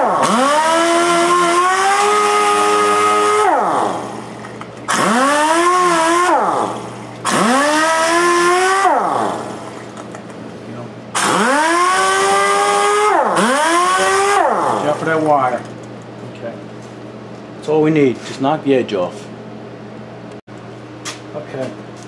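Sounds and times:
power sander whining on wood: 0:00.0 - 0:04.2, 0:04.9 - 0:09.5, 0:11.3 - 0:15.0.

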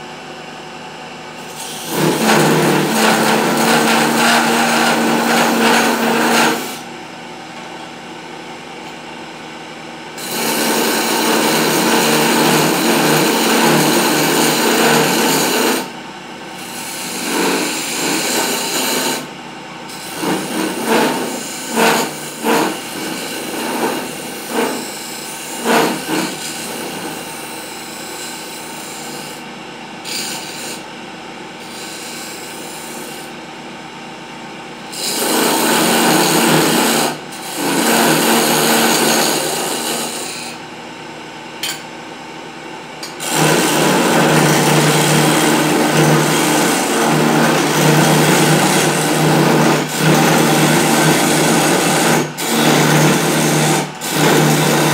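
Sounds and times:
chisel scraping spinning wood: 0:01.5 - 0:06.8, 0:10.2 - 0:15.9, 0:16.6 - 0:19.2, 0:35.0 - 0:40.6, 0:43.2 - 0:54.9.

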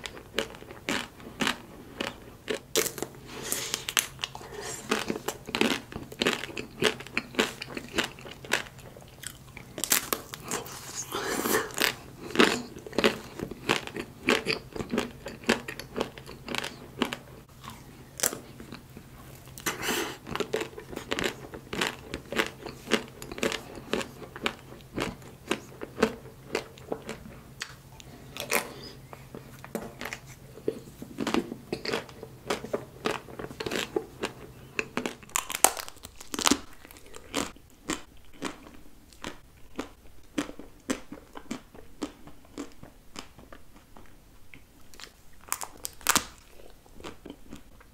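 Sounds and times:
chewing and mouth sounds: 0:00.0 - 0:47.9
chocolate shell crunching: 0:31.2 - 0:43.5.

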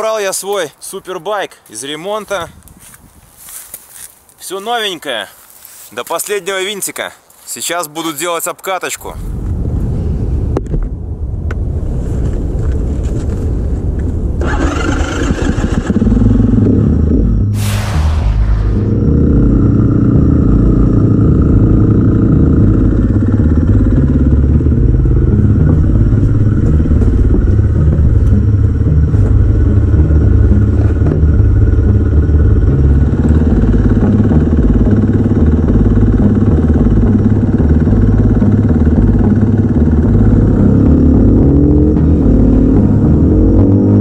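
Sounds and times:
dirt bike engine running: 0:18.7 - 0:44.0.

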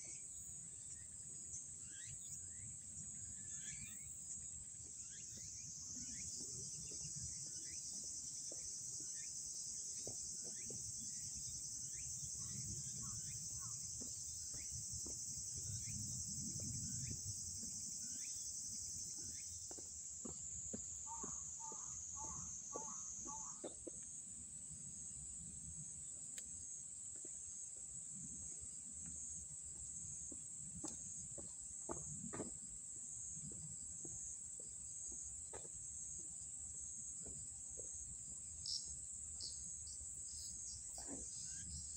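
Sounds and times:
insects chorus: 0:00.0 - 0:41.9
bird chirps: 0:00.9 - 0:04.2.

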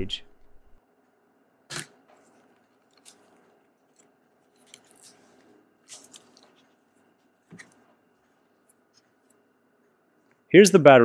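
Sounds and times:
small clicks and light scraping: 0:02.1 - 0:10.4.

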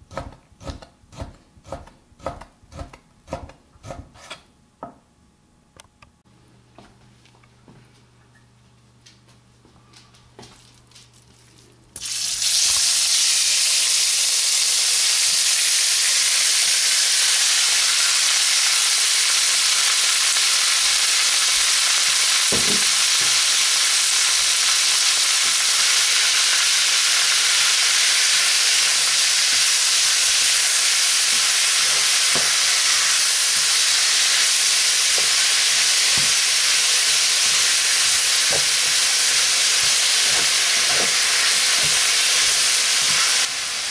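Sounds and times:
meat sizzling in hot oil: 0:12.0 - 0:43.9
spatula knocking wok: 0:31.3 - 0:43.4.

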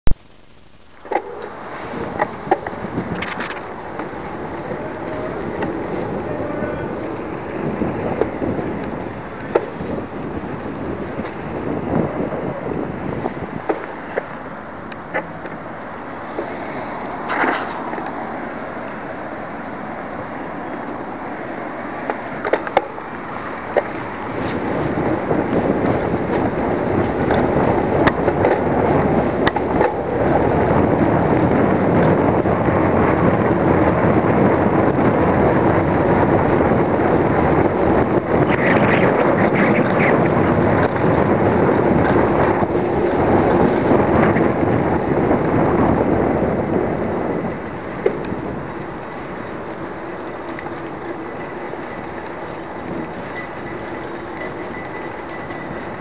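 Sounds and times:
bicycle rolling noise: 0:00.0 - 0:56.0
wind buffeting microphone: 0:01.0 - 0:56.0
faint high whine: 0:47.2 - 0:56.0.

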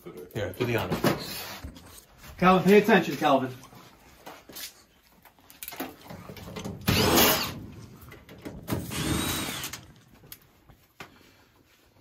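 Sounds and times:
cordless drill driving screw: 0:06.9 - 0:07.6, 0:08.8 - 0:10.0.

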